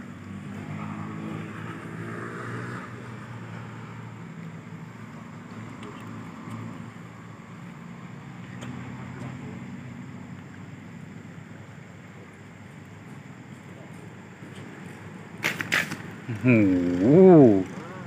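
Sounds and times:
engine humming: 2.9 - 18.0.

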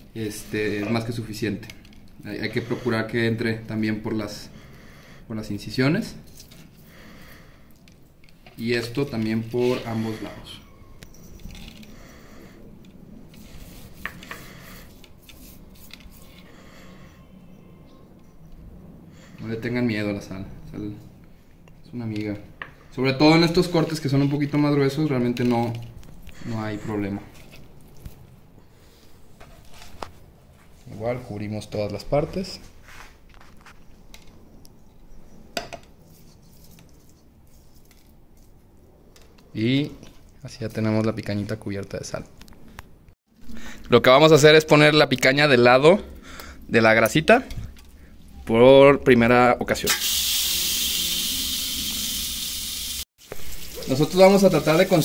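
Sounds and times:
hand rubbing salt into meat: 13.4 - 16.4, 53.5 - 55.0
hands rubbing salt into meat: 52.4 - 55.0.

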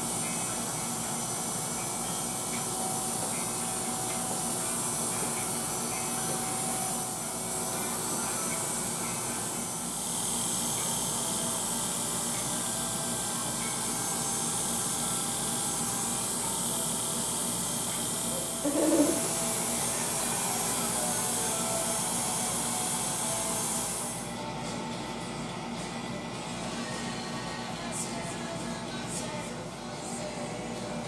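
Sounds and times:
electric hair clipper buzzing: 0.0 - 24.3.

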